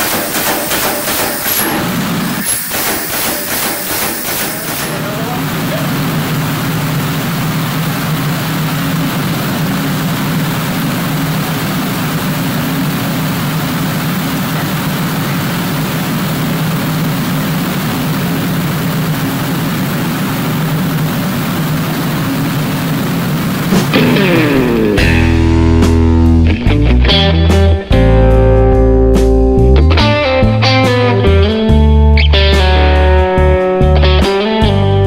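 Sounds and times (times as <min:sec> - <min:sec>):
forge roaring: 0:04.8 - 0:26.5
low hum: 0:04.9 - 0:35.0.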